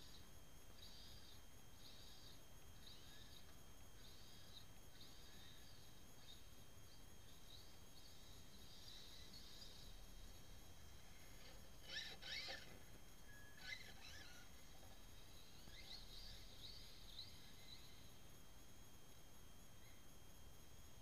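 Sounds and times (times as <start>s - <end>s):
faint outdoor ambience: 0.0s - 21.0s.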